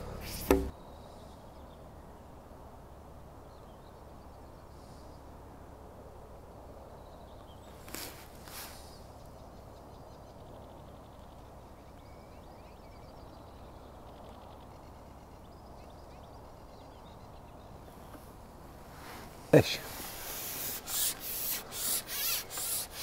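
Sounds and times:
faint bird chirps: 8.9 - 18.2.

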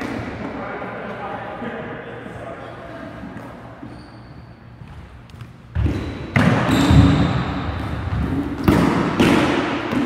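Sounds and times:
balls bouncing on hardwood court: 4.8 - 10.0.

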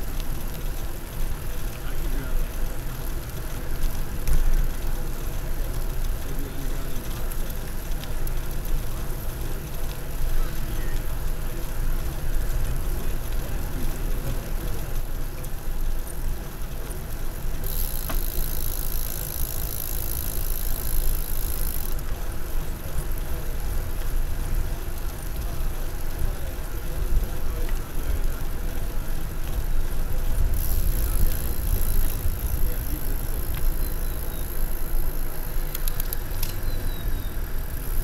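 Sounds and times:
bicycle riding on pavement: 0.0 - 38.0
wind rumble on microphone: 29.4 - 34.8.

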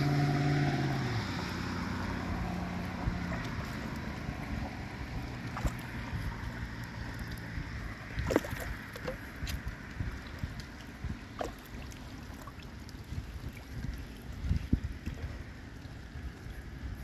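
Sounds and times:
floodwater sloshing and gurgling: 0.0 - 17.0
wind rumble on microphone: 0.0 - 17.0
short water plinks: 1.7 - 17.0.

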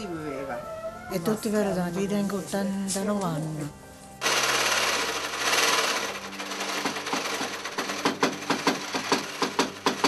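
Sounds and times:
sewing machine whirring: 4.2 - 10.0.

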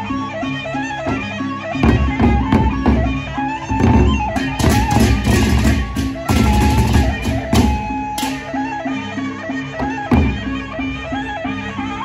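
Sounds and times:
shrill reed pipe melody: 0.8 - 12.0
barrel drums: 0.9 - 8.8, 9.7 - 11.4
hand cymbals clashing: 4.4 - 8.7.

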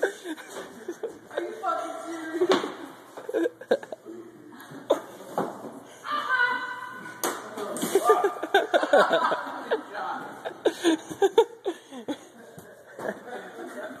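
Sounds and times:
people laughing: 0.0 - 2.4, 3.1 - 5.2, 7.6 - 14.0.

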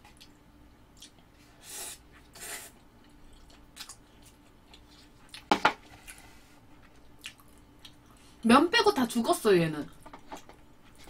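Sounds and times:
soft chewing: 0.0 - 1.5, 2.1 - 8.4, 9.9 - 11.0
person slurping noodles: 1.6 - 2.8.

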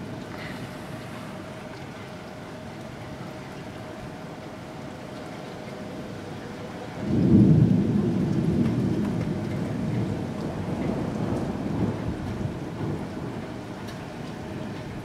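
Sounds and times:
distant thunder rumble: 7.0 - 14.3.

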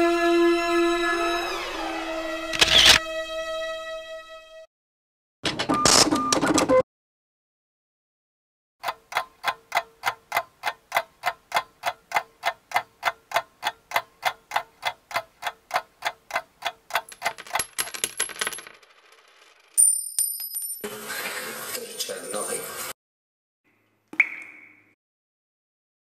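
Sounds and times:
steady ticking clicks: 8.8 - 17.1.

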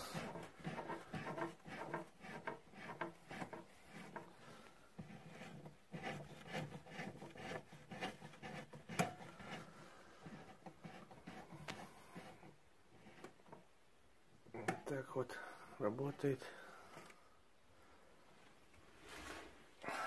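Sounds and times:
router lift rubbing and clicking: 0.1 - 4.3.

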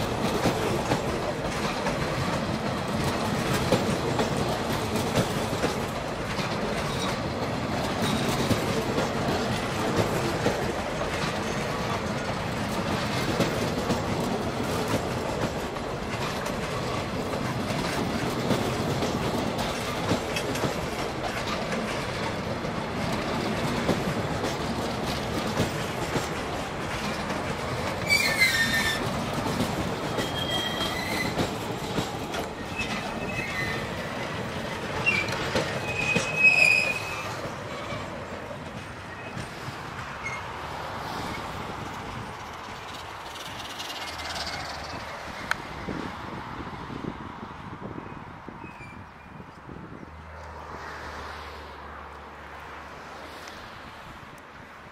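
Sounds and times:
train wheels clicking over joints: 0.0 - 46.1
train wheels squealing: 6.7 - 8.7, 27.7 - 38.1, 39.1 - 39.6, 40.2 - 40.6, 43.3 - 45.7, 48.2 - 49.6.

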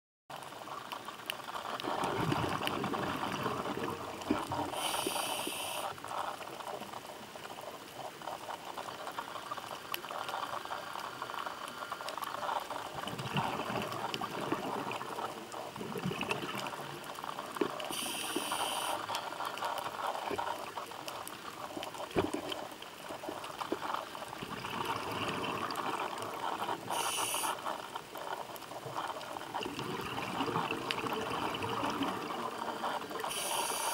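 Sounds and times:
gurgling bubbles: 0.6 - 33.9
regulator inhalation hiss: 4.7 - 6.0, 17.9 - 19.2, 26.8 - 27.6, 33.2 - 33.9.

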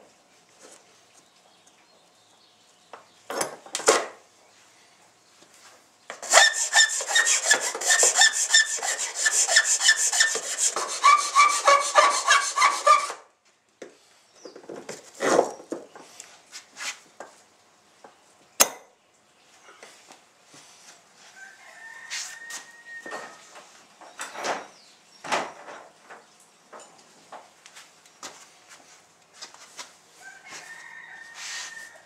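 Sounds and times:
file rasping on plastic: 6.2 - 13.2.

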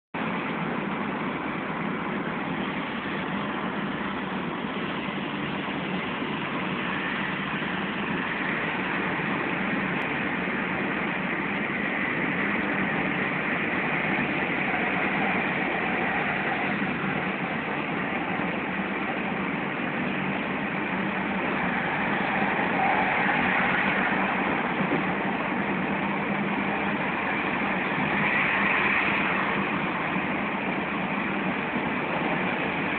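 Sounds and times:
road and engine noise in car: 0.2 - 32.9.

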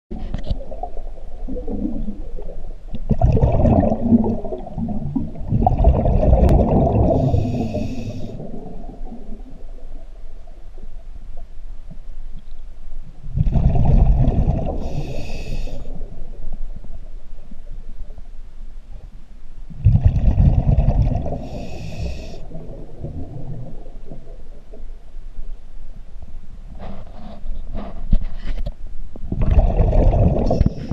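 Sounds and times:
diver breathing through regulator: 7.0 - 8.5, 14.7 - 16.0, 21.3 - 22.6.

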